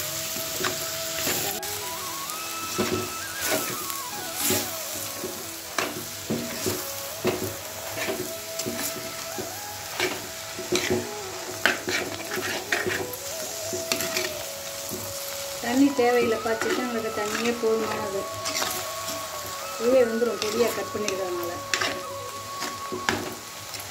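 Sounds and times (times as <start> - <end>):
meat sizzling in a pot: 0.0 - 23.9
metal spatula scraping a pot: 5.8 - 9.0, 10.0 - 14.4, 16.1 - 18.9, 21.7 - 23.3.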